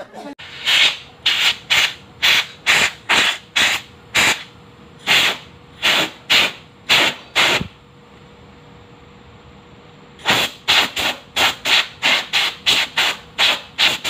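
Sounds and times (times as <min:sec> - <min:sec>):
air blow gun hissing bursts: 0:00.4 - 0:07.8, 0:10.2 - 0:14.0.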